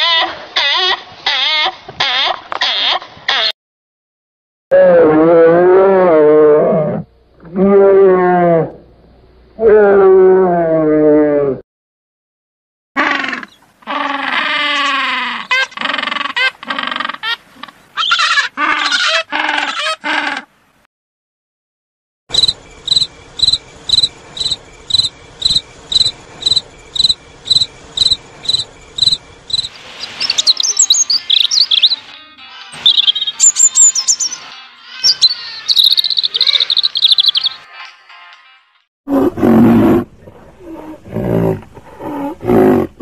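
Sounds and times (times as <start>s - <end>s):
penguins calling: 13.0s - 20.5s, 27.6s - 32.2s, 32.8s - 37.6s
crickets chirping: 22.3s - 32.0s, 35.7s - 37.5s
robin singing: 22.4s - 37.7s.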